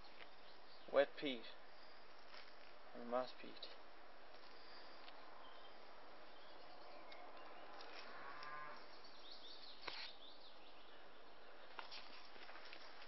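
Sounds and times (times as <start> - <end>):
cow mooing: 8.0 - 8.8.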